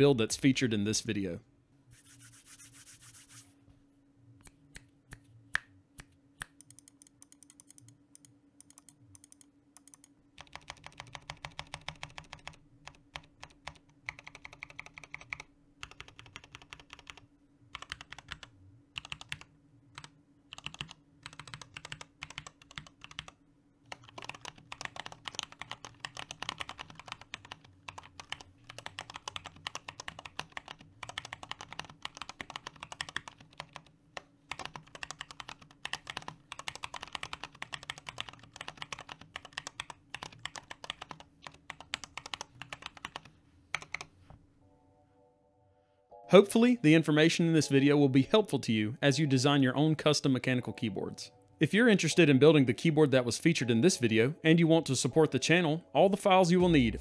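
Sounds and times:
mechanical keyboard typing: 6.6s - 44.1s.

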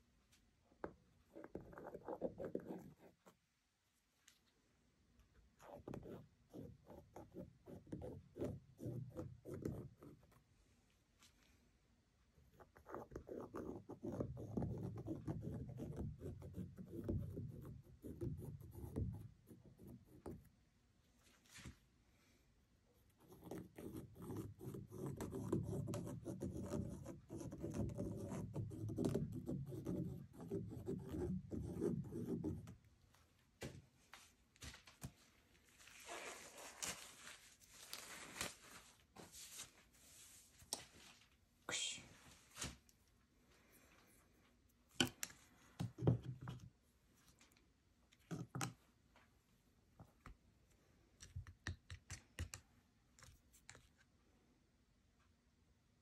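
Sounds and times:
soft high rustle: 34.1s - 41.4s.

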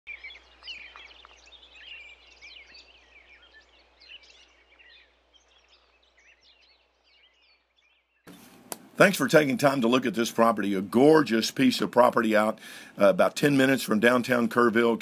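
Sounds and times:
birds chirping and singing: 0.1s - 8.3s.

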